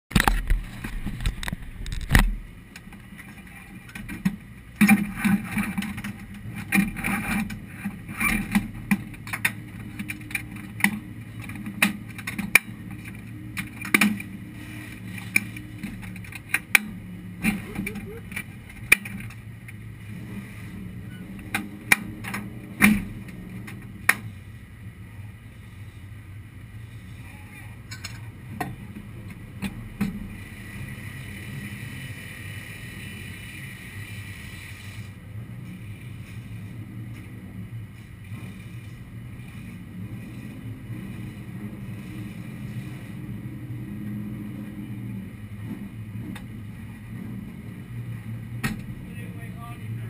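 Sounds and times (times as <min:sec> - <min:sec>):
sharp clicks and knocks: 0:00.1 - 0:14.4, 0:15.2 - 0:19.8
steady low hum: 0:00.1 - 0:50.0
faint voices: 0:17.5 - 0:18.4.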